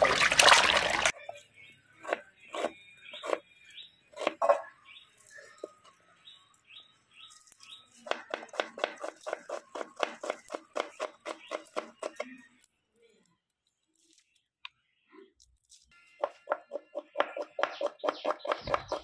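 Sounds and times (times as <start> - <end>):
knife chopping on wooden board: 8.1 - 12.2, 16.3 - 19.0.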